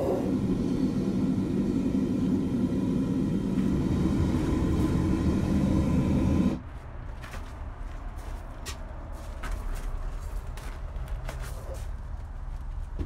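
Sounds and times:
furnace burner flame rumbling: 0.0s - 6.7s.

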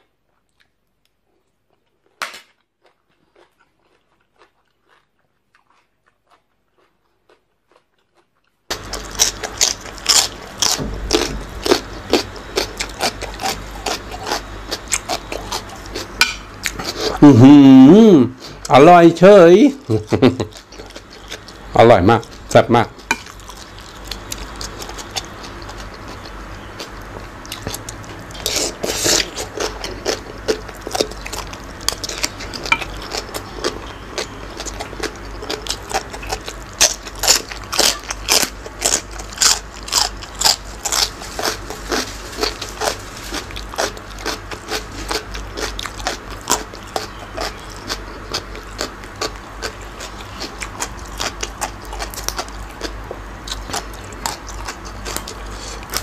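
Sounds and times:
man chewing and smacking: 0.0s - 17.3s, 18.4s - 56.0s.

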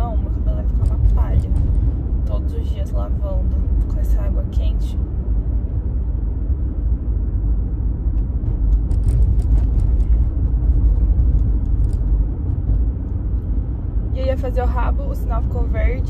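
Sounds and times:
car engine and road noise: 0.0s - 16.0s.

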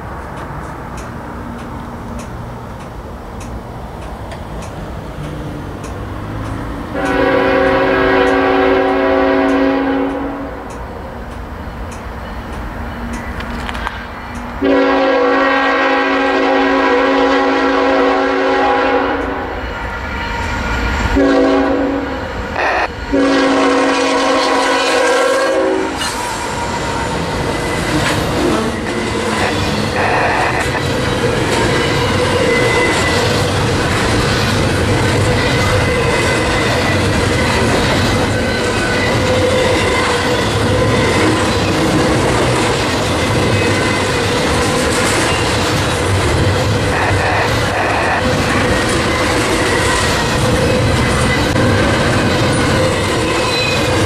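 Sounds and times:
wheels clacking over rail joints: 0.0s - 14.6s, 26.0s - 54.0s
train rumbling past: 0.0s - 54.0s
locomotive air horn blasts: 6.9s - 10.6s, 14.6s - 20.0s, 21.2s - 27.2s, 29.4s - 30.8s, 46.9s - 48.4s.

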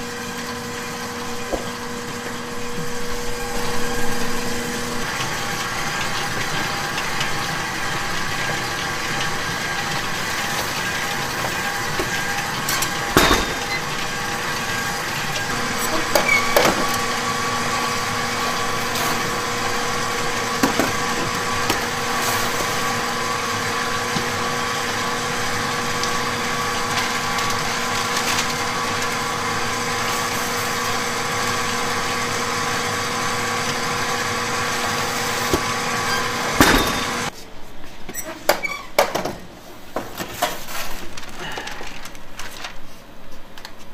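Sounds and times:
bakery machinery hum: 0.0s - 43.9s
metal baking trays knocking: 12.9s - 14.2s.

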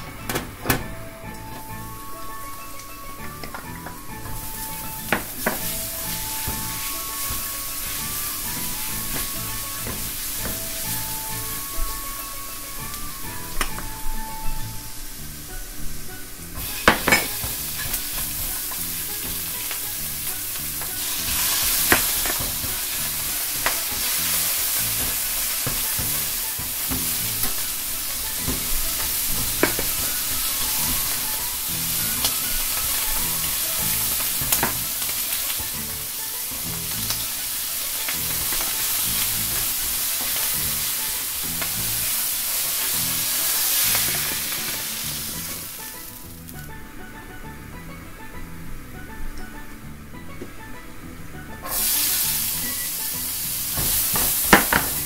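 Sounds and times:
food sizzling in oil: 1.3s - 46.7s, 51.6s - 55.0s
spatula tapping pan: 3.5s - 12.1s, 16.6s - 44.8s.

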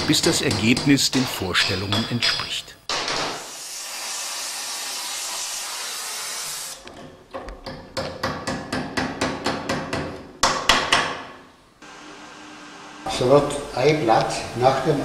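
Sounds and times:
gas welding torch hissing: 3.4s - 6.8s.

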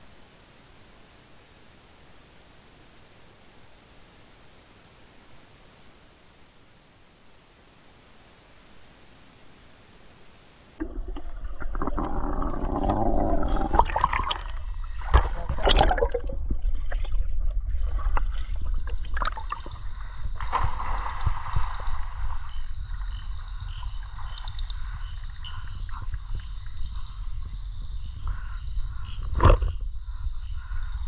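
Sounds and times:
water splashing in a pool: 10.8s - 19.8s, 20.4s - 22.5s.

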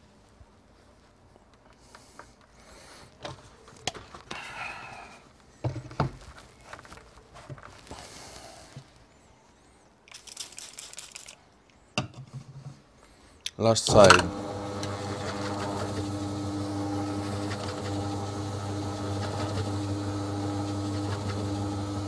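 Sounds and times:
hands rustling and scraping: 0.0s - 9.3s, 10.1s - 13.0s.

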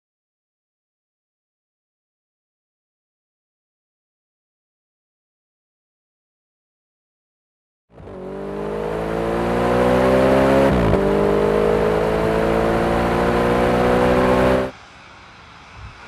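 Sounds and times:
car engine accelerating hard: 7.9s - 14.7s.

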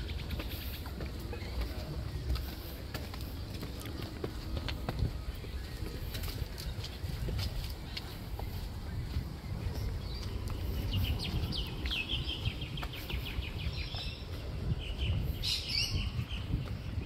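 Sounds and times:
birds calling: 0.0s - 17.0s
steady low rumble: 0.0s - 17.0s.

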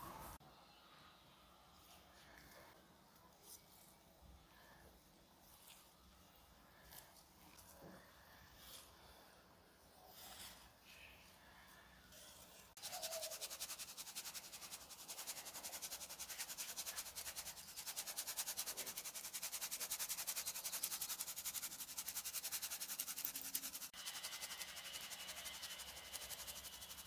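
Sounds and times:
spice shaker rattling: 12.8s - 27.0s.

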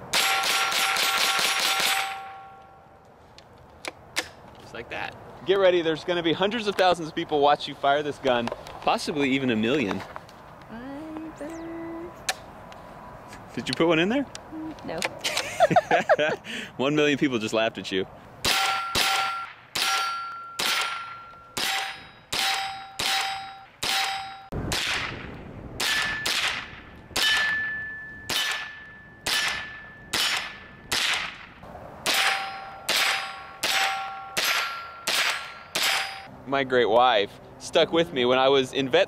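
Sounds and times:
rifle shots: 18.4s - 27.6s, 28.3s - 36.3s
steel target ringing ding: 18.6s - 24.5s, 27.2s - 30.9s, 32.2s - 36.3s.

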